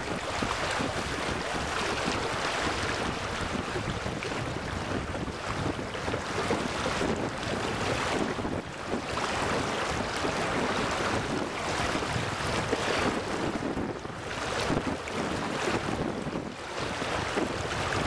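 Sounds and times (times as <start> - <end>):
river water rushing: 0.0 - 8.2
wind buffeting microphone: 0.0 - 18.0.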